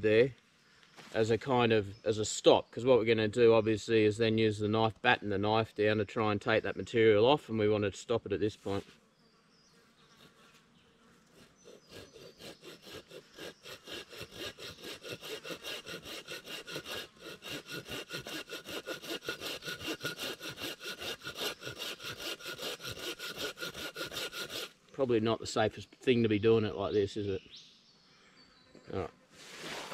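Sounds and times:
hand saw cutting wood: 0:10.1 - 0:10.6, 0:11.3 - 0:24.8.

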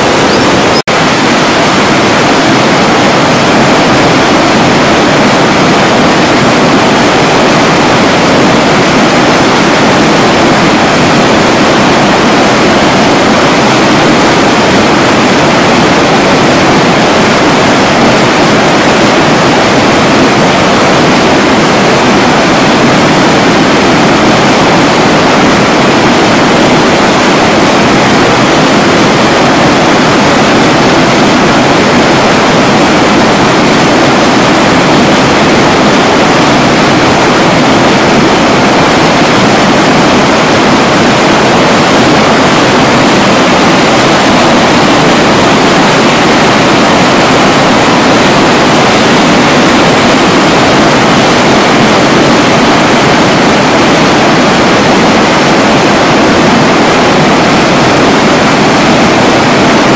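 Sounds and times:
fast-flowing water rushing: 0:00.0 - 0:59.9.

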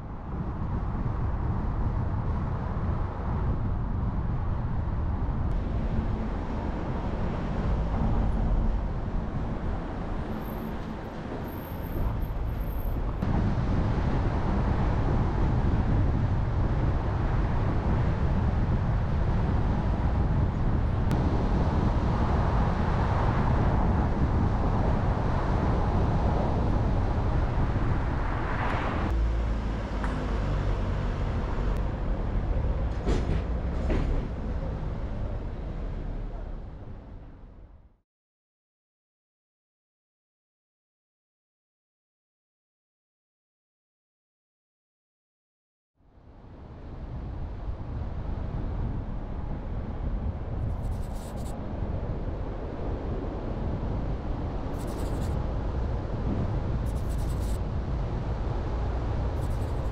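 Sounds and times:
car engine and tyre noise: 0:00.0 - 0:38.0, 0:46.2 - 0:59.9.

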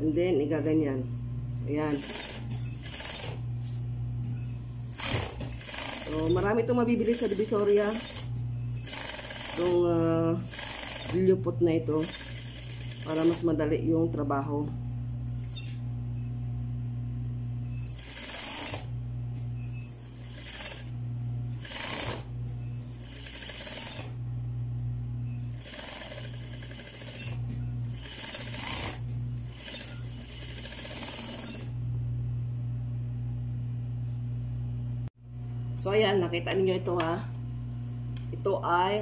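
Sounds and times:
sewing machine humming: 0:01.8 - 0:03.5, 0:04.6 - 0:13.6, 0:17.7 - 0:19.0, 0:19.8 - 0:24.2, 0:25.4 - 0:31.8.

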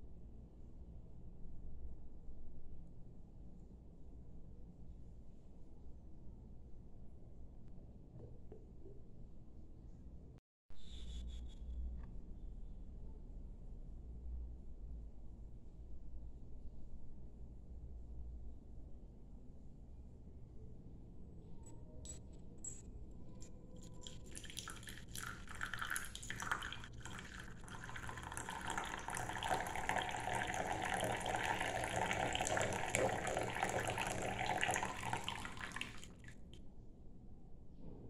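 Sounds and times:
tea pouring into cup: 0:23.8 - 0:36.3.

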